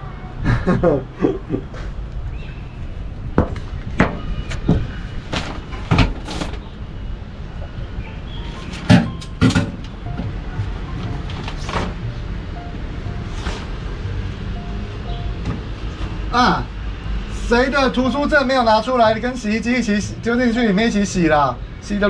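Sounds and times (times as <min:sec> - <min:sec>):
knocks and clunks: 0:03.4 - 0:06.7, 0:08.6 - 0:12.1, 0:15.0 - 0:16.3
washing machine door opening: 0:08.7 - 0:10.3.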